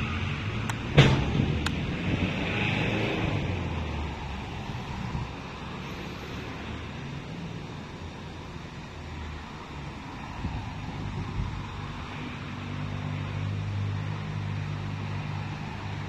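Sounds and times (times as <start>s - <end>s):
wind buffeting microphone: 0.0s - 5.8s, 10.1s - 12.1s.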